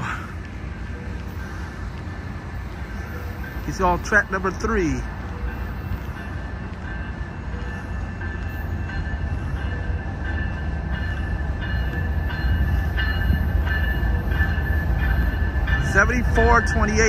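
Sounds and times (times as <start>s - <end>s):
freight train locomotive rumble: 0.0s - 17.0s.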